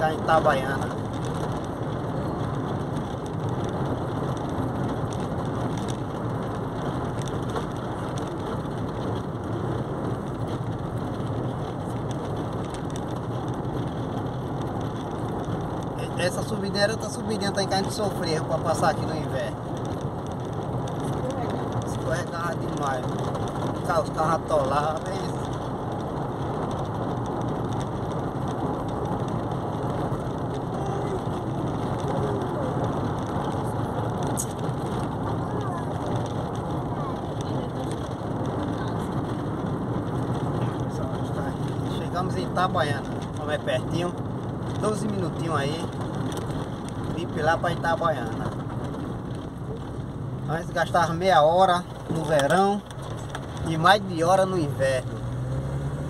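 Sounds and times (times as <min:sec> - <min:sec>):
car tyres and engine hum: 0:00.0 - 0:56.0.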